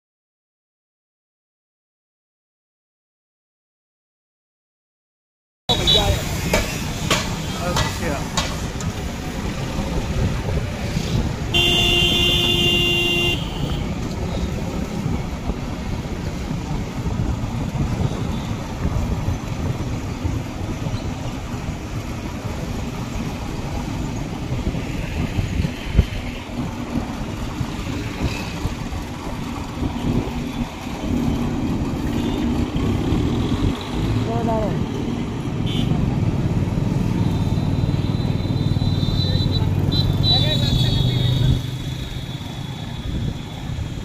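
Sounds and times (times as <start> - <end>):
road rumble: 5.7 - 44.0
vehicle horn blast: 11.5 - 13.9, 35.6 - 36.0.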